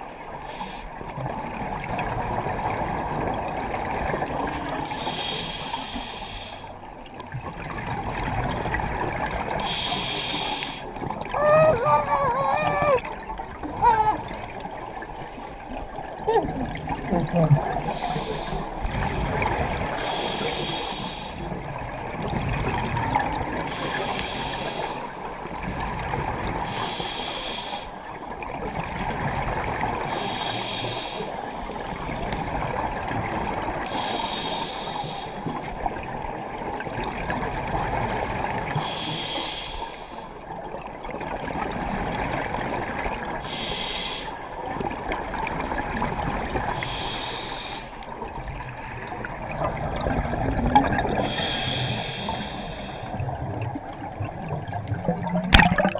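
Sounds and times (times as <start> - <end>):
underwater rumble: 0.0 - 27.3, 40.0 - 55.9
diver exhaling bubbles: 49.4 - 55.9.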